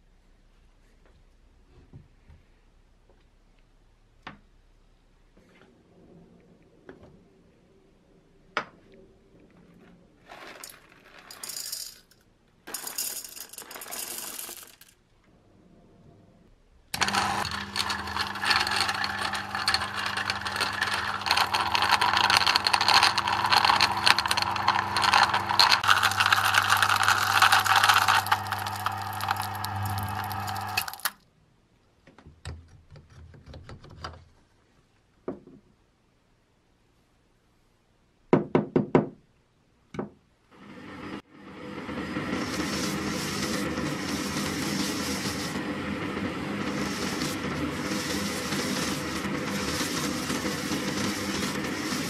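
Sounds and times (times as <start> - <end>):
coffee beans being ground: 10.2 - 15.0, 17.0 - 31.2, 42.2 - 52.0
coffee grinder motor hum: 17.0 - 31.1, 40.6 - 52.0.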